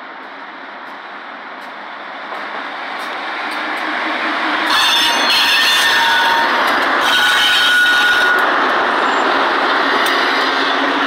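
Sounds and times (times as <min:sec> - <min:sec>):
diesel locomotive engines: 0:00.0 - 0:11.0
wheels rumbling on rail: 0:00.0 - 0:11.0
high wheel squeals: 0:04.7 - 0:09.4.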